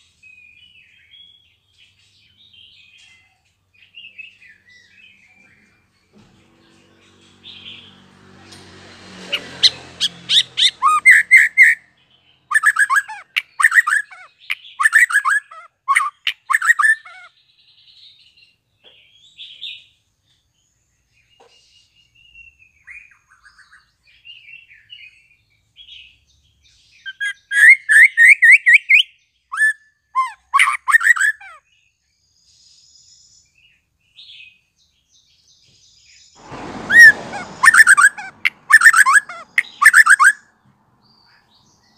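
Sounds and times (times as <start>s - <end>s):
bird twittering: 9.3s - 11.8s, 12.5s - 17.3s, 36.9s - 40.4s
bird singing sharp repeated notes: 9.3s - 17.4s, 36.4s - 40.4s.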